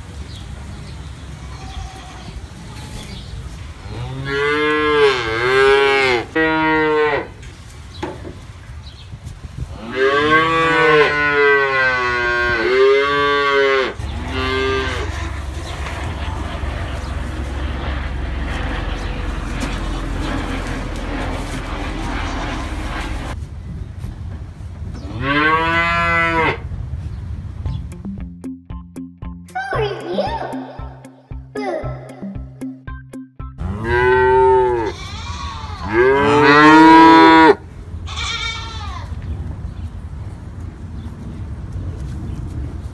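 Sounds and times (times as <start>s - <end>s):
calf mooing: 3.9s - 7.3s, 9.8s - 15.9s, 25.2s - 26.6s, 33.6s - 39.1s
steady low noise: 14.8s - 23.4s, 27.4s - 35.0s.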